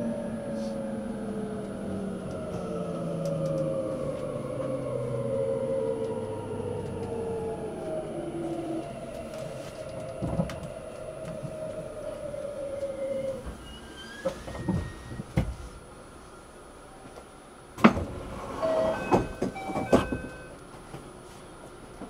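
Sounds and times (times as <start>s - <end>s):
train traction motors whining: 0.0s - 15.3s.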